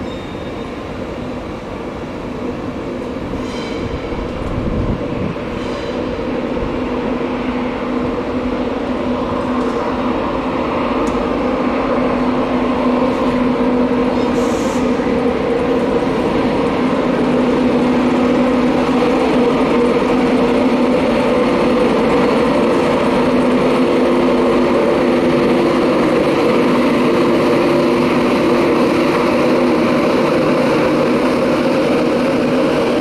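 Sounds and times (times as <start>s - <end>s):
electric train humming: 0.0s - 33.0s.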